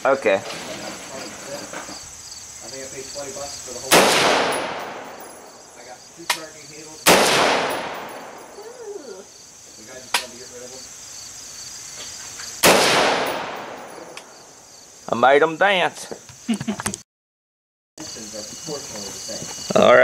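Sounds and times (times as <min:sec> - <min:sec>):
insects chirring: 0:00.0 - 0:17.0, 0:18.0 - 0:20.0
rifle shots with echo: 0:03.8 - 0:05.7, 0:07.0 - 0:08.6, 0:12.6 - 0:14.4.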